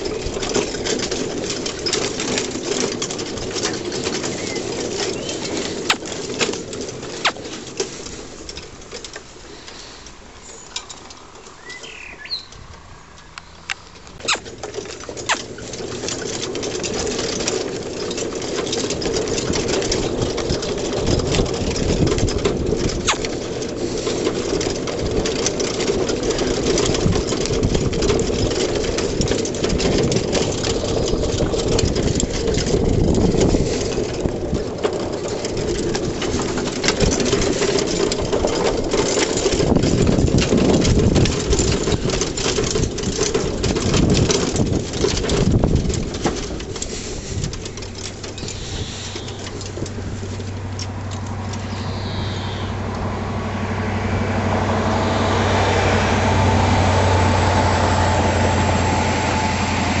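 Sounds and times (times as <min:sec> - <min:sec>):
cart rolling over grass: 0:00.0 - 1:00.0
bird chirping: 0:11.5 - 0:14.4, 0:48.4 - 0:49.4, 0:51.6 - 0:52.8.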